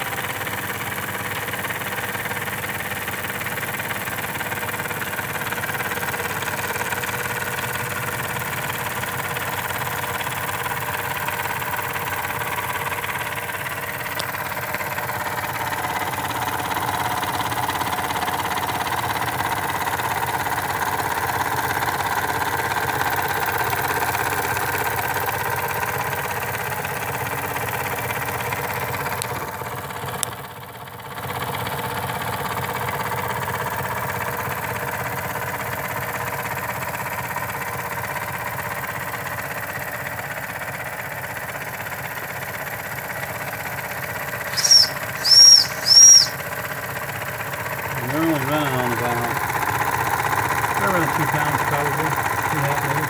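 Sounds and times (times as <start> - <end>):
steam whistle toots: 44.5 - 46.4
steam engines running: 47.9 - 53.0.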